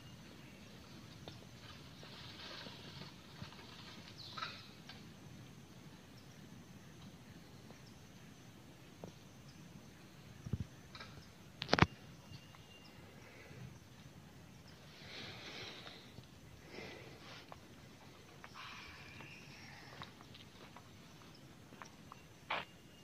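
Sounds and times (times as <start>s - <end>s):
animal or bird call: 18.5s - 20.1s.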